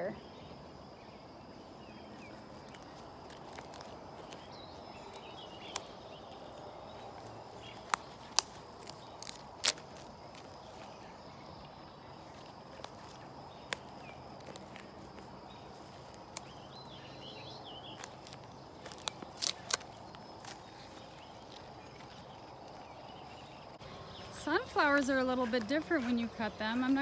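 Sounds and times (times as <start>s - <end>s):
outdoor background noise: 0.0s - 27.0s
plant stems snapping: 2.2s - 10.9s, 12.3s - 16.7s, 17.8s - 22.8s.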